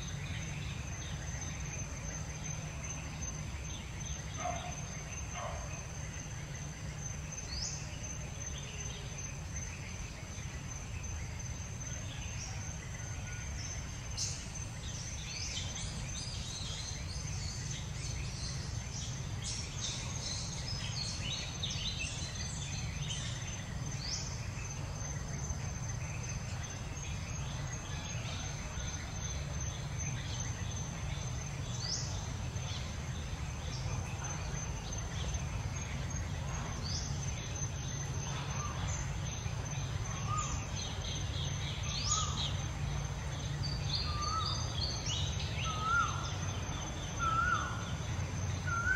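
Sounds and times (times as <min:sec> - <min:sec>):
bird chirps: 0:00.0 - 0:48.9.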